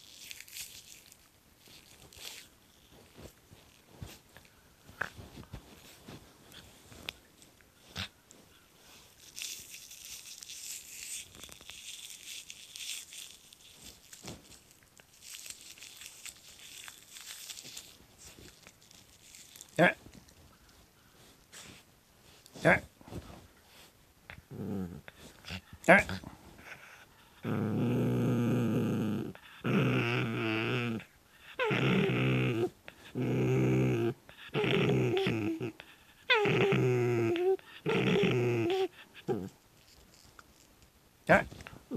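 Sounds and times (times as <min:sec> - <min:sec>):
towel rustling and crinkling: 0:00.0 - 0:24.0.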